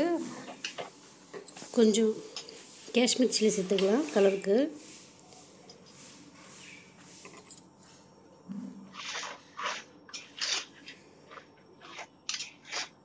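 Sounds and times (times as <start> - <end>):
spoon scraping metal pot: 8.9 - 13.0.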